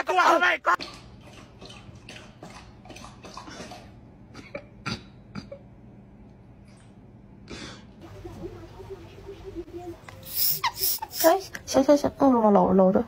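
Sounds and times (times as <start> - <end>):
dog lapping water: 0.8 - 4.5
faint low hum: 0.9 - 13.0.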